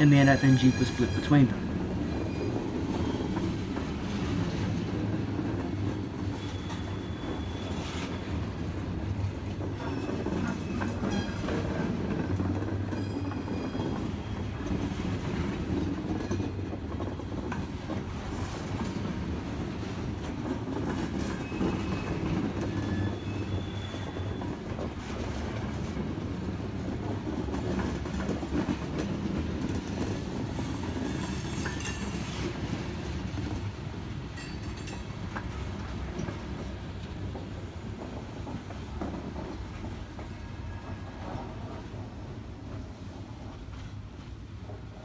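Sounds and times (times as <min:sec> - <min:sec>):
train wheels rumbling on rails: 0:00.0 - 0:45.0
wheels clicking over rail joints: 0:00.5 - 0:40.4
high wheel squeals: 0:06.3 - 0:08.5, 0:21.3 - 0:24.6.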